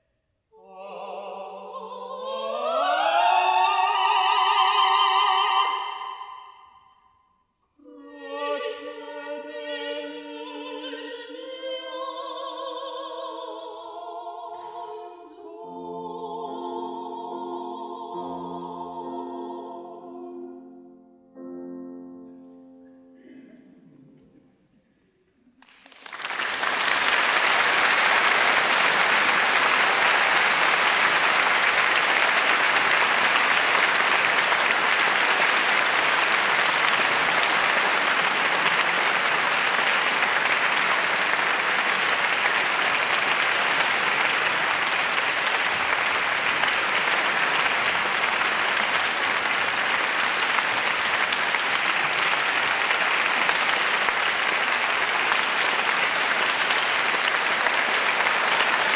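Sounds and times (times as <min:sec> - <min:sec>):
audience applause: 0:25.6 - 0:58.9.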